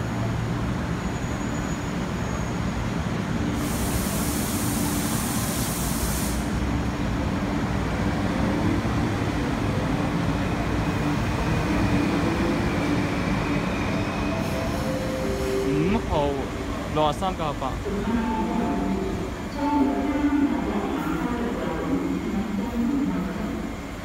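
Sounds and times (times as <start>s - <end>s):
high hiss: 3.6s - 6.6s.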